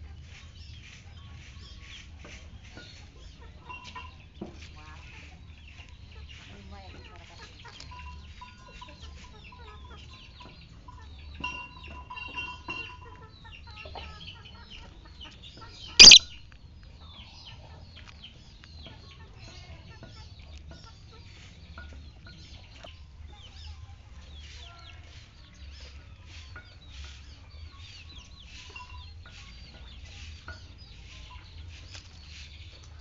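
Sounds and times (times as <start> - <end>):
birds chirping and clucking: 13.1 - 16.2
loud sharp bird call: 16.0 - 16.2.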